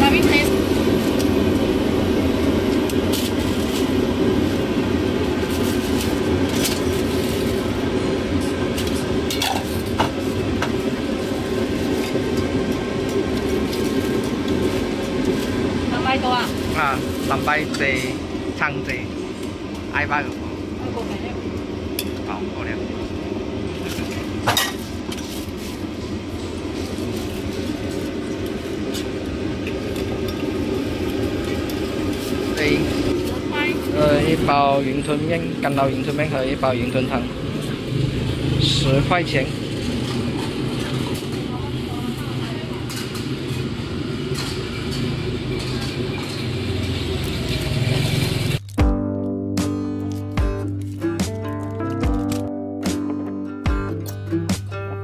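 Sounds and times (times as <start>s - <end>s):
traffic hum: 0.0s - 48.8s
busy food stall rumble: 0.0s - 49.0s
metal bowls and utensils clinking: 8.7s - 10.2s, 44.3s - 48.6s.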